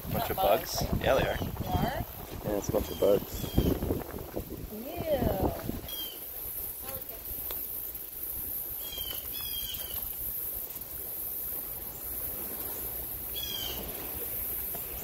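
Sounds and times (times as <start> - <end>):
insects chorus: 0.0 - 15.0
bird calling: 2.6 - 3.8, 5.8 - 7.2, 8.7 - 10.2, 13.3 - 14.4.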